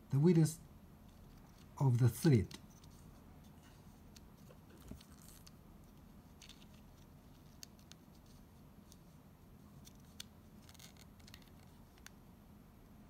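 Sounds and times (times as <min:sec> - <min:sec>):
small clicks and scratches of plastic dial: 0:02.4 - 0:12.2.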